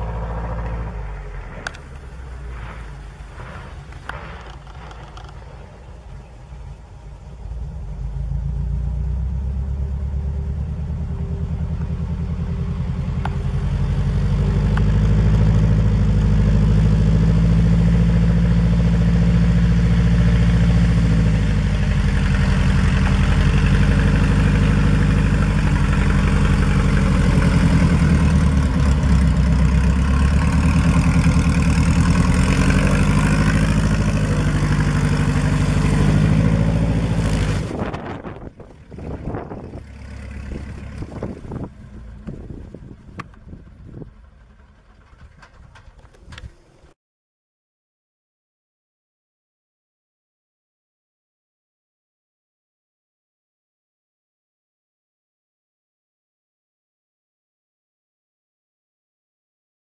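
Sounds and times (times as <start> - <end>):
propeller plane engine taxiing: 0.0 - 47.0.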